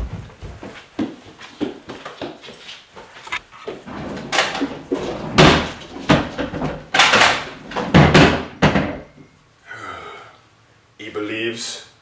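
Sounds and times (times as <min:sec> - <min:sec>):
cupboards opening and shutting: 0:03.8 - 0:09.1.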